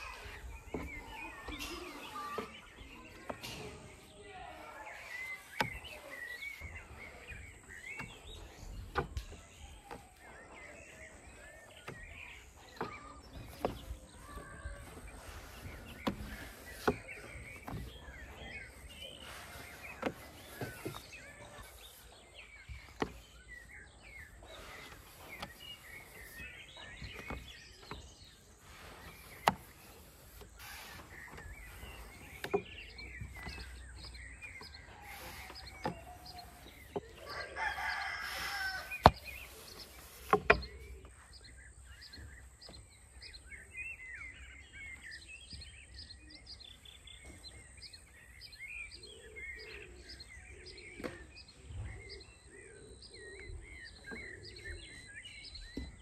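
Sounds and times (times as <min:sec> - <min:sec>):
rolling pin rolling dough: 0:00.0 - 0:41.6
small birds chirping: 0:00.0 - 0:56.0.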